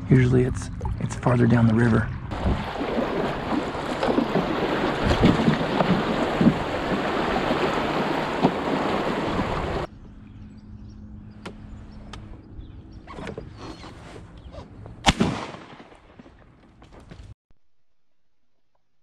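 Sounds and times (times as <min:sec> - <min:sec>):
river rushing and splashing: 0:02.3 - 0:09.9.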